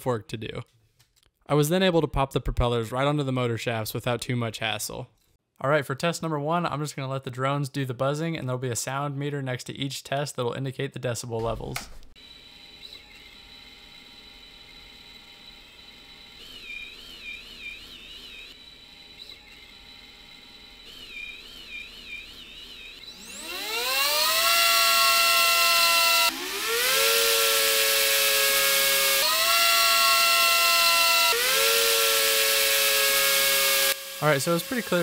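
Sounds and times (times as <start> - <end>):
drone motors whining: 12.2 - 35.0.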